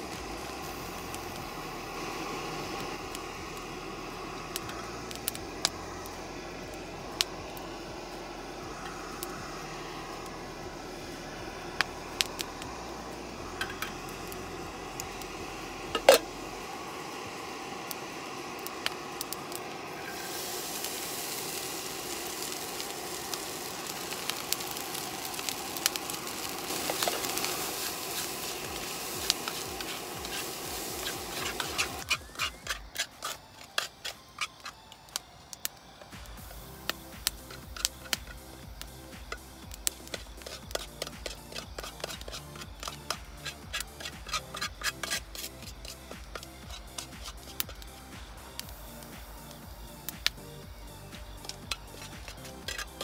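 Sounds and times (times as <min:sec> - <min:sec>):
rice sizzling in a frying pan: 0:00.0 - 0:53.0
spatula tapping and scraping pan: 0:39.3 - 0:47.9, 0:51.4 - 0:53.0.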